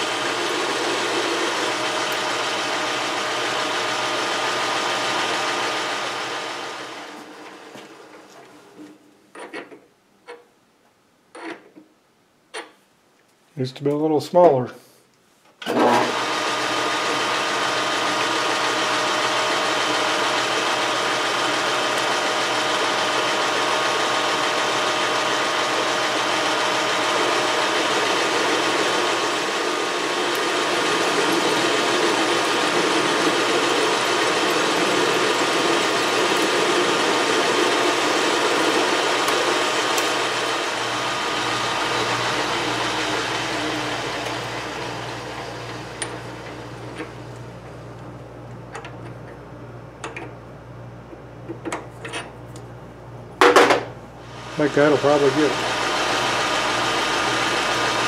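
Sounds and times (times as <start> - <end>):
metal lathe motor humming: 0.0 - 7.5, 15.6 - 49.4, 54.2 - 58.0.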